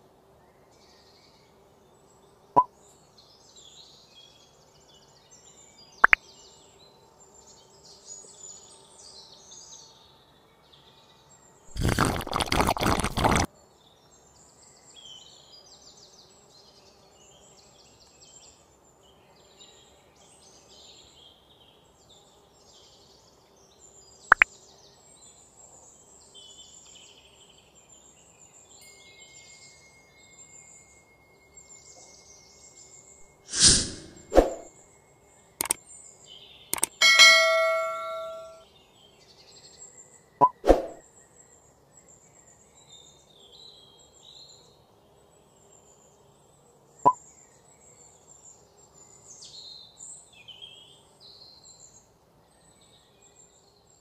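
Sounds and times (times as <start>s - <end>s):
faint birds chirping: 0.0s - 54.0s
small metal and wooden parts clicking: 36.8s - 37.0s.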